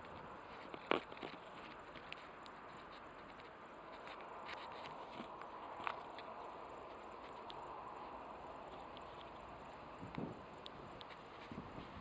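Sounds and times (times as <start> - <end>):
faint outdoor background hum: 0.0 - 12.0.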